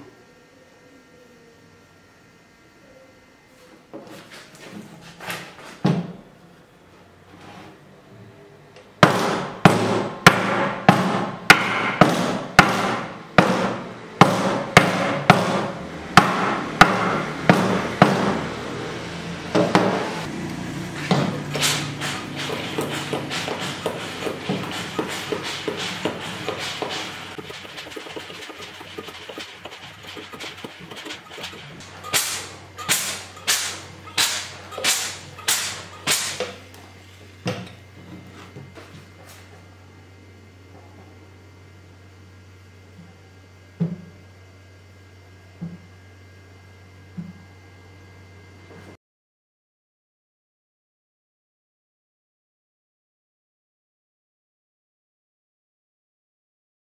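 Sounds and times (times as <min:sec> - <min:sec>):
hammer striking wooden board: 0:09.0 - 0:18.4, 0:30.0 - 0:36.4
steam iron hissing: 0:21.6 - 0:36.4.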